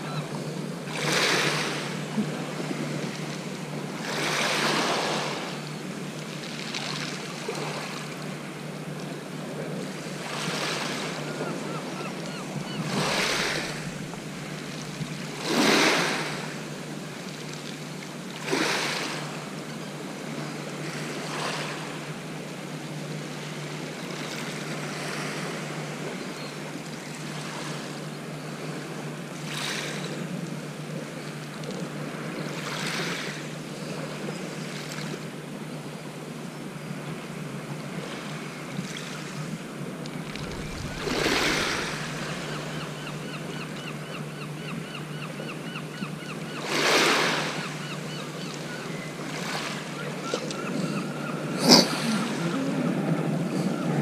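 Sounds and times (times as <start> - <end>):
waves washing onto shingle: 12.8 - 17.2, 39.3 - 43.8.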